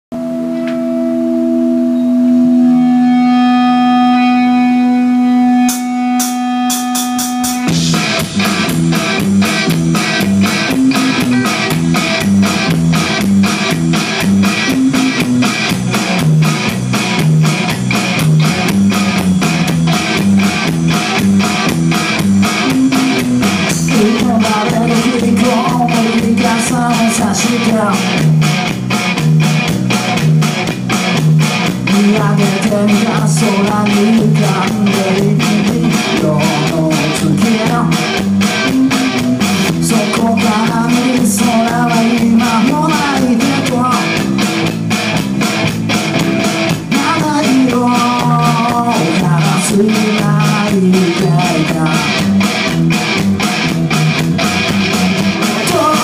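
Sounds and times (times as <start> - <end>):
held guitar chord ringing: 0.1 - 26.6
rock band playing: 0.1 - 56.0.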